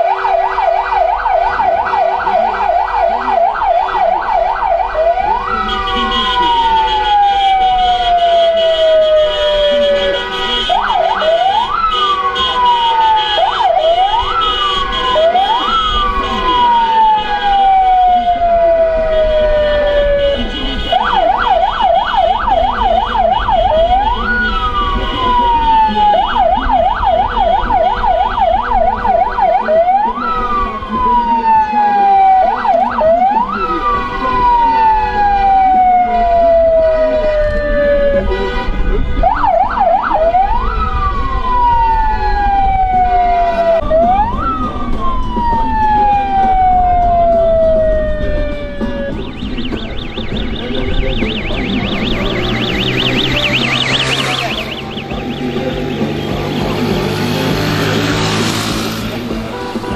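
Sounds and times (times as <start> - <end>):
electronic siren wailing and yelping: 0.0 - 20.4, 21.0 - 38.3, 39.2 - 58.7.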